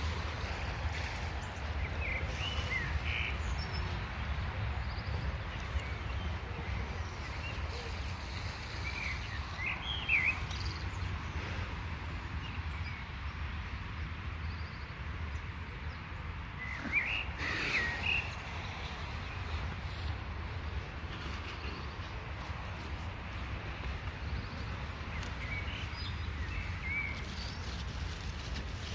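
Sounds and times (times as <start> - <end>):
small birds chirping: 0.0 - 11.3, 14.6 - 28.9.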